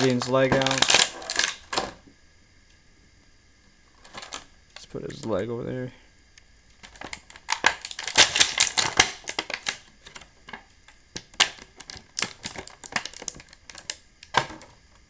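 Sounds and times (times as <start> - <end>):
plastic packaging crinkling: 0.0 - 1.8, 6.8 - 14.7.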